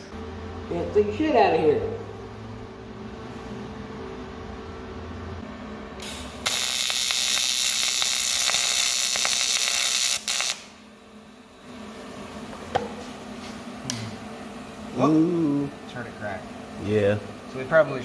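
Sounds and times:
welding arc buzzing: 5.8 - 18.0.

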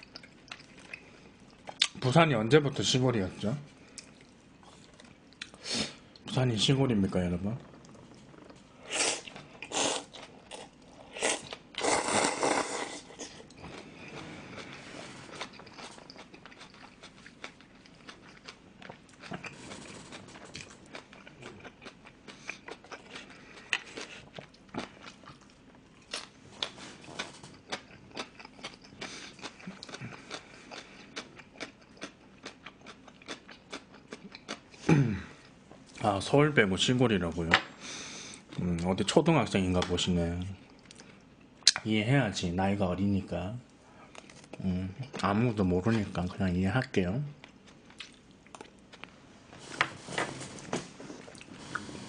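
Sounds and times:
person slurping noodles: 11.2 - 13.4, 51.4 - 52.0.

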